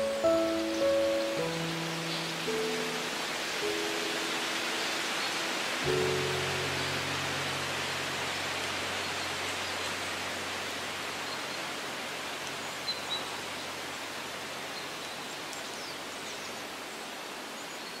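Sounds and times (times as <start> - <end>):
high chirps: 0.0 - 4.3
wind rustling leaves: 0.0 - 18.0.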